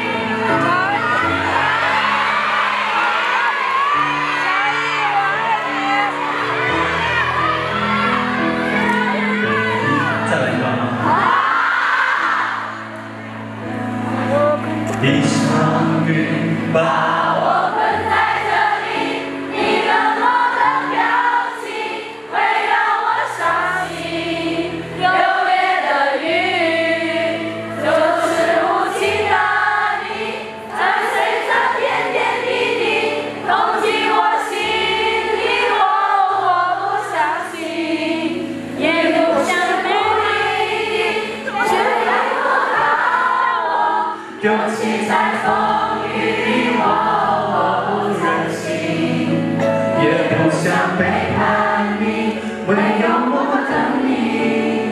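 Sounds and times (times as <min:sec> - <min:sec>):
crowd singing along: 0:00.0 - 0:54.9
pop ballad backing track: 0:12.9 - 0:18.9.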